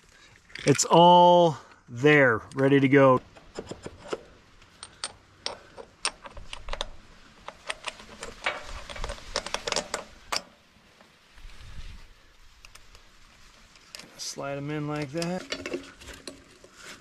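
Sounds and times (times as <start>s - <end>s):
metal clicks and clinks: 3.6s - 10.5s.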